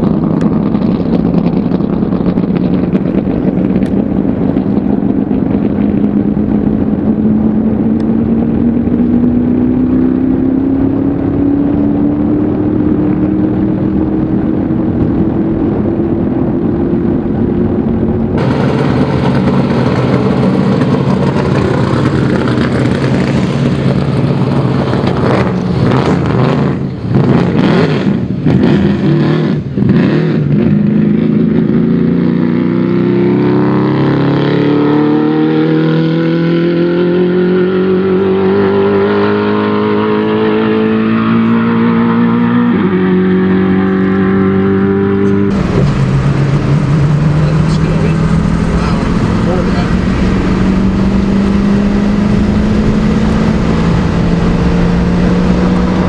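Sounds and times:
rushing noise: 0.0s - 31.2s, 45.1s - 56.0s
race car engine accelerating: 0.0s - 56.0s
pickup truck engine running: 17.3s - 26.4s, 45.5s - 53.6s.

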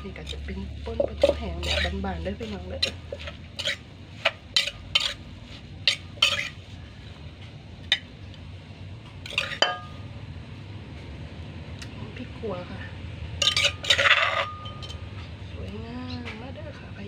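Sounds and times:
spoon scraping in clay mortar: 0.0s - 6.7s, 9.3s - 9.7s, 13.4s - 15.0s
clink on ceramic plate: 9.3s - 10.0s, 13.4s - 15.0s.

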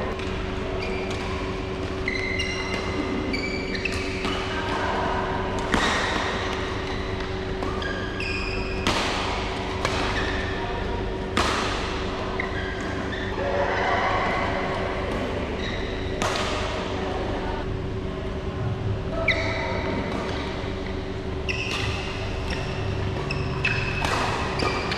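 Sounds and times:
steady hum: 0.0s - 24.9s
shoes squeaking on court: 0.4s - 4.7s, 5.9s - 8.8s, 12.3s - 13.3s, 15.6s - 16.2s, 19.2s - 24.9s
racket hitting shuttlecock: 1.0s - 4.8s, 5.5s - 13.2s, 15.1s - 16.9s, 19.8s - 24.9s.

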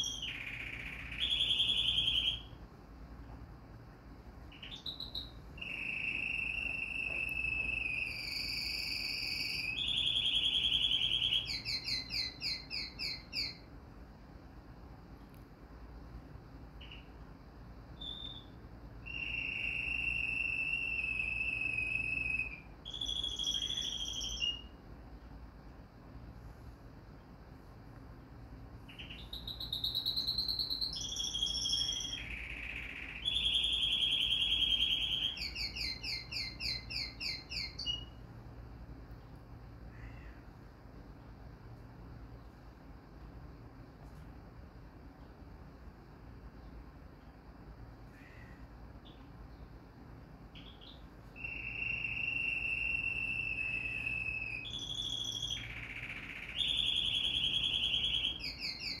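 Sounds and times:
songbird singing trills: 0.0s - 2.6s, 4.5s - 13.7s, 16.8s - 17.2s, 17.9s - 24.8s, 28.8s - 38.3s, 48.2s - 49.8s, 50.5s - 59.0s.

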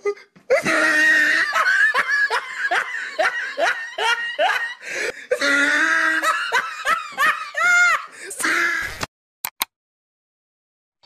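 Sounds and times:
woman laughing hard: 0.5s - 8.2s.

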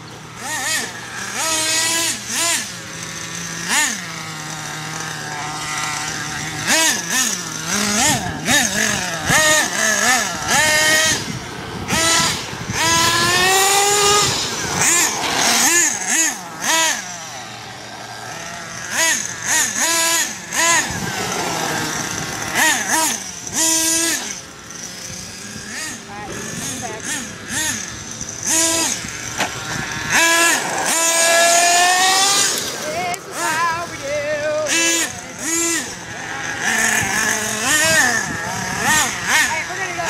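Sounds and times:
rc truck motor revving: 0.0s - 40.0s.

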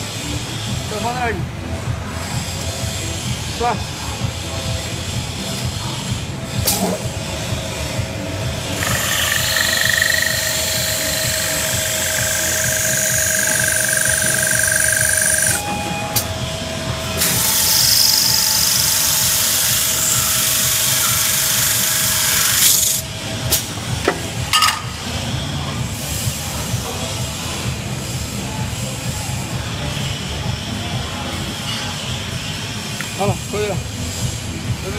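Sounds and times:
spindle motor hum: 6.6s - 23.4s
drill bit grinding glass: 8.8s - 16.3s, 17.2s - 23.0s.

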